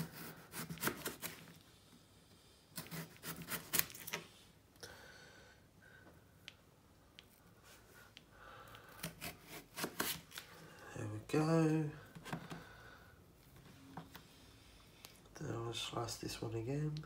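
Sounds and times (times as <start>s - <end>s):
knife slicing potatoes: 0.0s - 1.5s, 2.8s - 4.0s, 8.8s - 10.4s.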